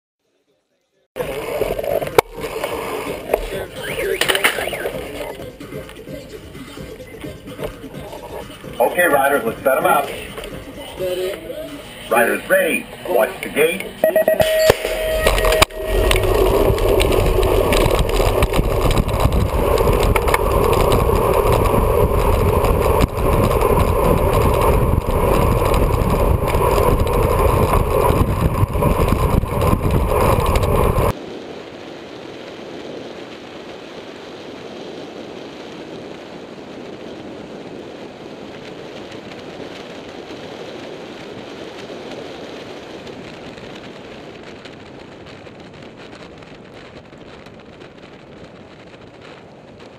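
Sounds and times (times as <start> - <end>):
wind buffeting microphone: 15.1 - 49.9.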